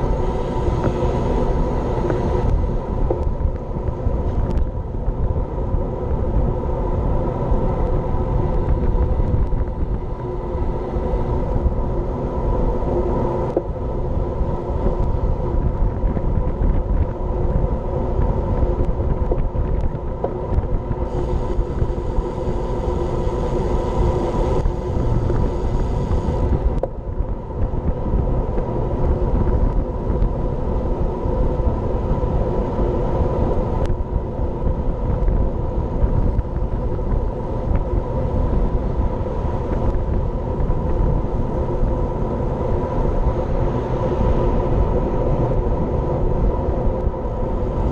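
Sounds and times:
tyre road noise: 0.0 - 47.9
wind rumbling over microphone: 0.0 - 47.9
high hiss: 21.0 - 26.8.

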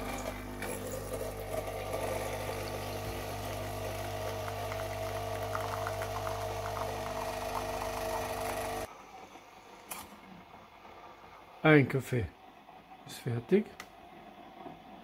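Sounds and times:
coffee sputtering: 0.0 - 8.9
coffee machine pump humming: 0.0 - 11.3.

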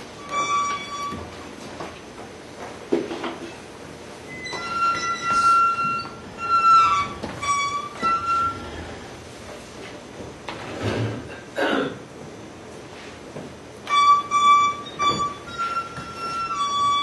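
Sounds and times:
high squeaky tones: 0.2 - 1.4, 4.3 - 8.8, 13.9 - 17.0.

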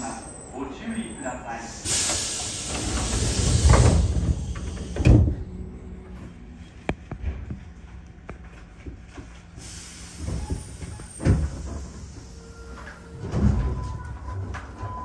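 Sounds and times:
air hiss: 1.6 - 5.2, 9.6 - 12.4
train motor whine: 1.8 - 6.8.

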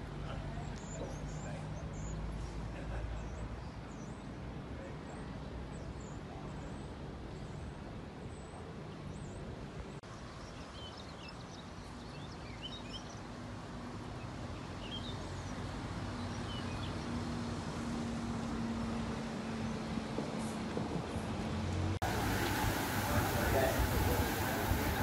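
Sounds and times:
small birds chirping: 0.3 - 7.7, 8.3 - 13.4, 14.2 - 17.1, 22.0 - 25.0
vehicle hum: 17.5 - 25.0
background hiss: 22.0 - 25.0.

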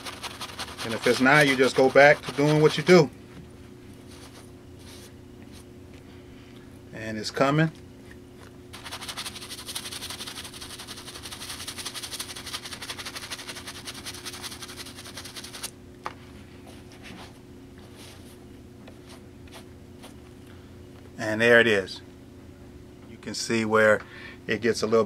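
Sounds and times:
brush scrubbing a sneaker: 0.0 - 3.1, 8.7 - 15.7.

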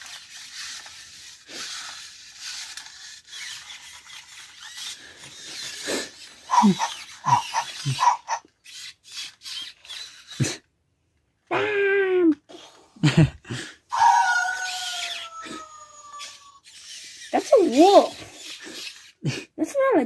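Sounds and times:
toy robot dog electronic barks: 4.6 - 10.4, 13.9 - 19.0.

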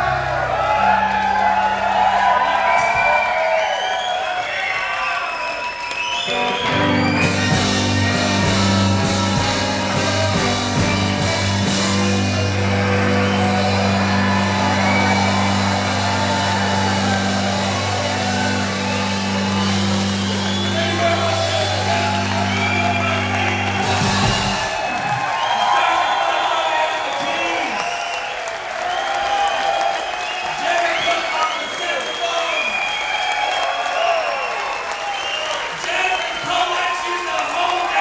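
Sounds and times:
blues band holding chord: 0.0 - 2.9, 6.3 - 24.9
people shouting and whooping: 0.0 - 38.0.

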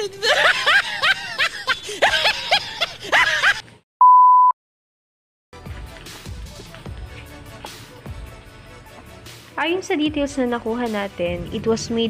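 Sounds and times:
test-tone beep: 4.0 - 4.6.

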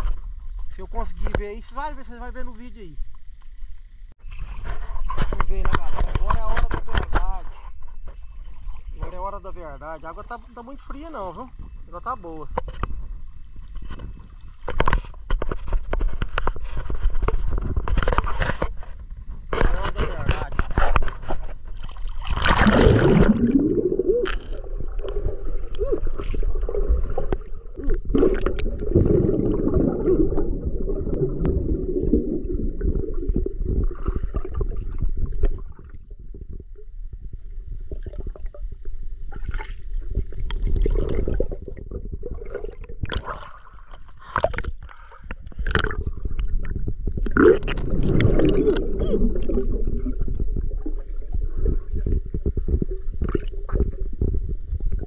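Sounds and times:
low underwater rumble: 20.2 - 55.0
underwater gurgling and bubbling: 20.7 - 55.0.

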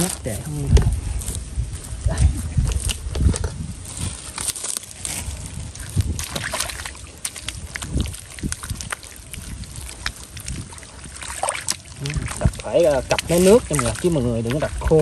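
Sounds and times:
foot squelching through wet mud: 0.0 - 15.0
small clicks and crackles: 2.6 - 10.7.

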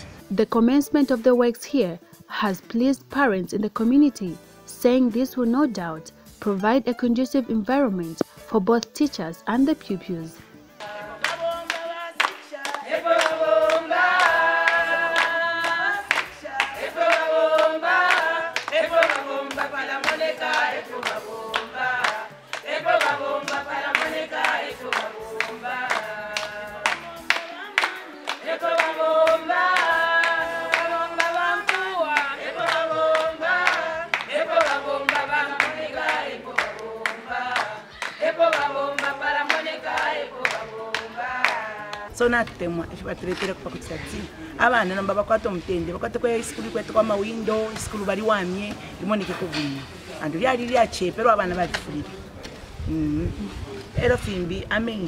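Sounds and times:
group of voices singing: 10.6 - 42.2
hands clapping to a beat: 10.8 - 42.6, 43.2 - 43.6.

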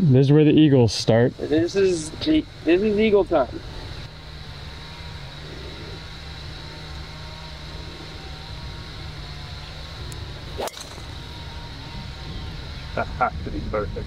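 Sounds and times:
golf club striking ball: 10.1 - 11.5.

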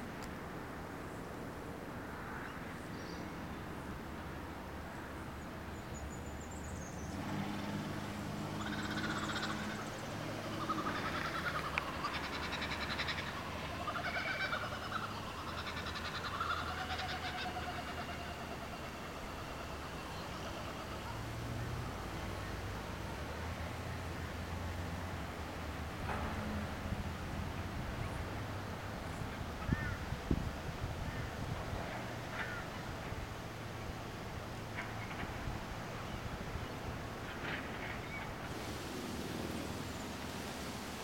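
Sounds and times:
birds calling with whistles and trills: 5.7 - 21.4.

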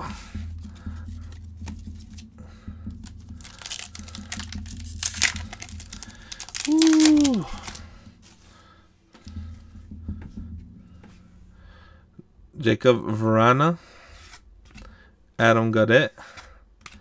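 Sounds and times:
wrapper crinkling and tearing: 3.4 - 7.8.

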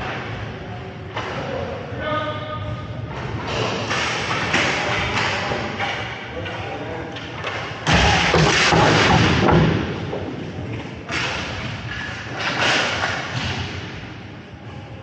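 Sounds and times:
hockey thuds and clattering: 7.2 - 13.9
loud impact: 7.8 - 11.9.

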